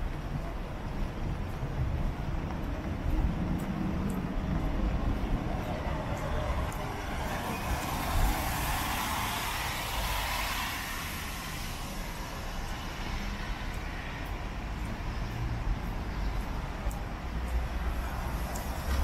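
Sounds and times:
low traffic rumble: 0:00.0 - 0:19.0
tyre hiss on wet road: 0:06.2 - 0:14.2.

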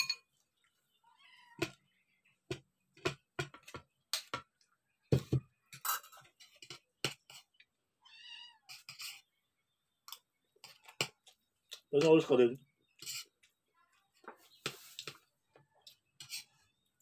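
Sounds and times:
spoon clinking on plate: 0:00.0 - 0:00.3
cat meowing: 0:08.0 - 0:08.7.

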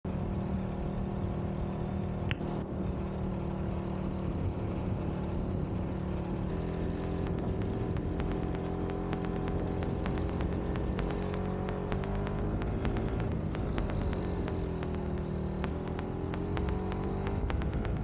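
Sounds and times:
motorcycle engine running: 0:00.1 - 0:18.0
faint sharp ticks: 0:06.6 - 0:18.0.

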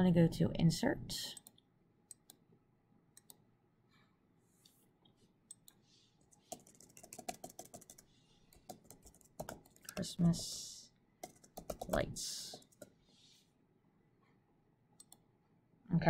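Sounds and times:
faint keyboard typing: 0:05.5 - 0:13.0, 0:15.0 - 0:15.3.

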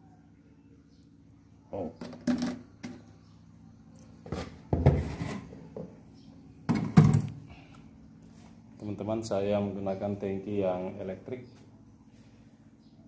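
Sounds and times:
faint low hum: 0:00.0 - 0:13.0
plastic knocks and clatters: 0:06.7 - 0:07.3.

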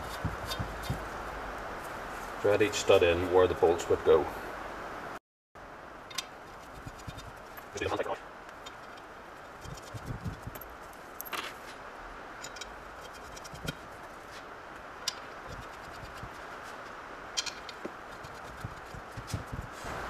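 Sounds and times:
steady hiss: 0:00.0 - 0:20.0
metallic clicks and scrapes: 0:08.5 - 0:11.6, 0:12.4 - 0:14.4, 0:15.0 - 0:19.6.

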